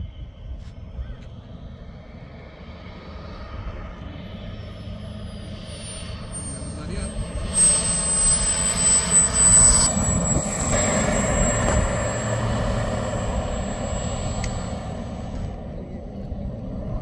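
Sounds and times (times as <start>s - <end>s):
jet turbine whining: 0.0s - 17.0s
rushing noise: 4.8s - 15.7s.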